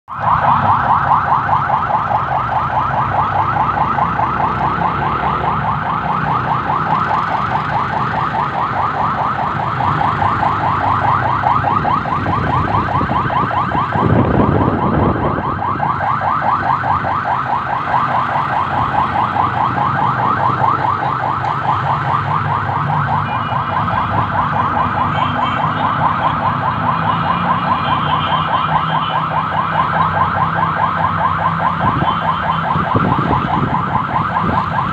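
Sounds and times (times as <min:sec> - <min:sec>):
electronic siren warbling: 0:00.1 - 0:34.9.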